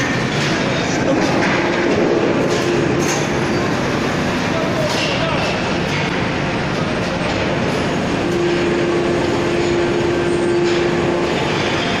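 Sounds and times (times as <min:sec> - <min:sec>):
steady machine whine: 0:00.0 - 0:04.8, 0:05.5 - 0:12.0
heavy machinery noise: 0:00.0 - 0:12.0.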